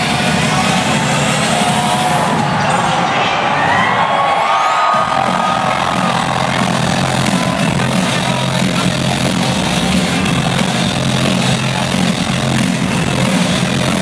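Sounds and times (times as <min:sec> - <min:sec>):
electronic dance music: 0:00.0 - 0:14.0.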